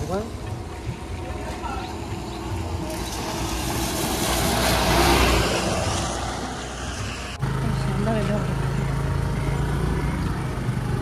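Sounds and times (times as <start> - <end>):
scooter engine running: 0.1 - 11.0.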